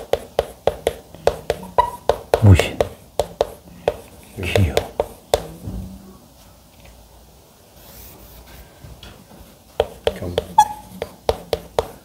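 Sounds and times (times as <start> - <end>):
chalk scratching on chalkboard: 0.0 - 5.5, 9.8 - 12.0
chalk tapping on chalkboard: 0.0 - 5.5, 9.8 - 12.0.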